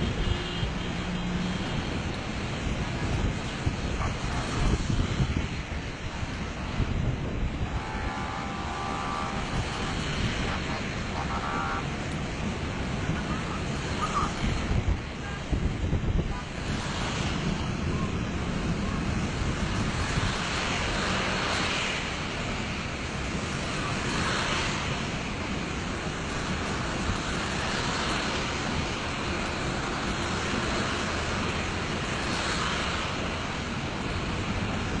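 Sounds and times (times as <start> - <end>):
wind buffeting microphone: 0.0 - 35.0
waterfall rushing: 7.6 - 15.7.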